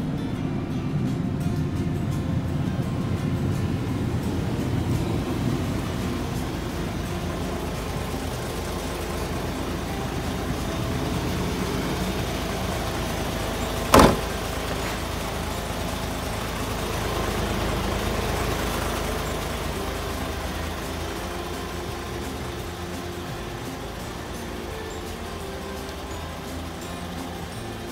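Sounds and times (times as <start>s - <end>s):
diesel truck engine idling: 0.0s - 27.9s
loud sharp bang: 13.9s - 14.4s.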